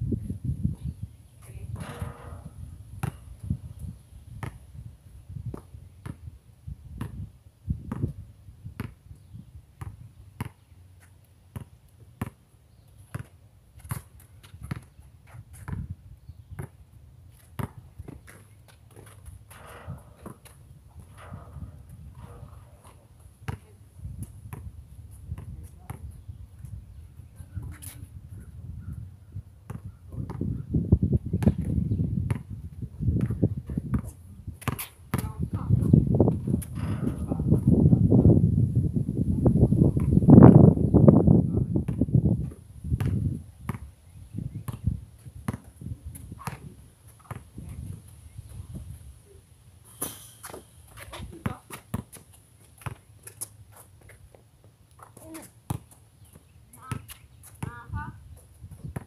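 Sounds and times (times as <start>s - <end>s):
basketball bouncing on concrete: 1.8s - 3.6s, 7.0s - 9.0s, 9.8s - 10.6s, 11.5s - 12.4s, 13.1s - 14.9s, 15.6s - 15.9s, 16.6s - 16.8s, 17.5s - 24.7s, 29.7s - 30.6s, 31.3s - 37.4s, 41.8s - 43.9s, 44.7s - 48.0s, 50.0s - 53.0s, 55.0s - 59.0s.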